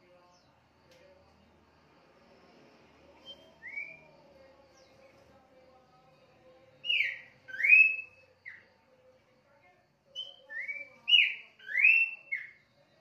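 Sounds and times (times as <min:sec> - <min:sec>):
bird whistling song: 0:03.2 - 0:04.1, 0:06.8 - 0:08.6, 0:10.1 - 0:12.8.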